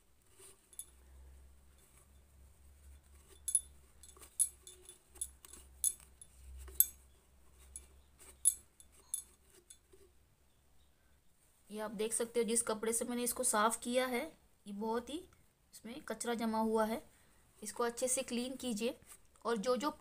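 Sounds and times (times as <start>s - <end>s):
light clicks and clinks: 0.6s - 1.1s, 3.2s - 10.0s.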